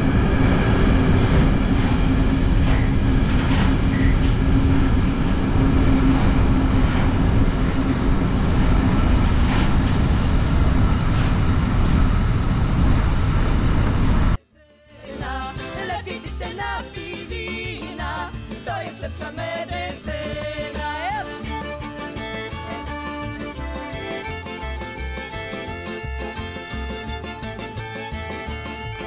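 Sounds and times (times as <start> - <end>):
freight train wagons rumbling: 0.0 - 14.4.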